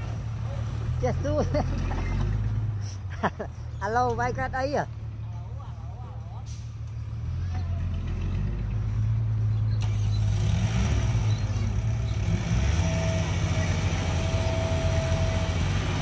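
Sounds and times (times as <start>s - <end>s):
heavy diesel engine rumbling: 0.0s - 16.0s.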